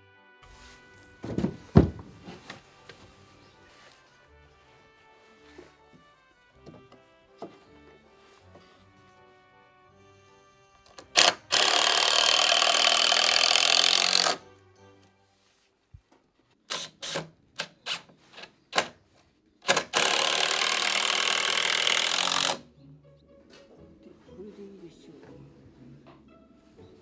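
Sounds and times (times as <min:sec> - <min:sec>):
faint background music: 0:00.0 - 0:27.0
power tool running: 0:11.0 - 0:14.4, 0:19.7 - 0:22.6.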